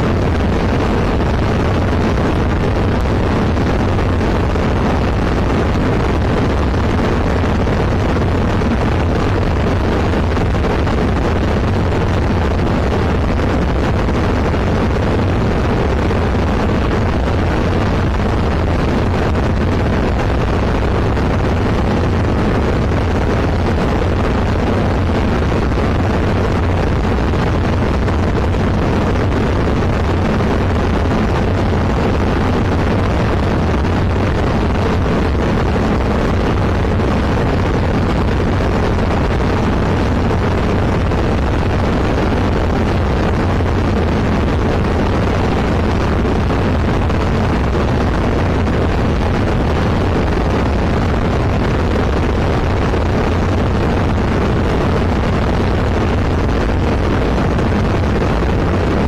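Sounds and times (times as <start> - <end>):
aircraft engine and propeller: 0.0 - 59.0
rush of airflow: 0.0 - 59.0.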